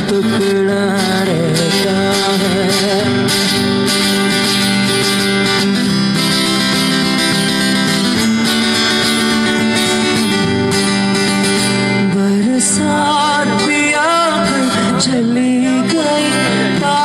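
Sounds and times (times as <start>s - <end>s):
man singing: 0.0s - 4.0s, 11.8s - 17.0s
acoustic guitar playing: 0.0s - 17.0s.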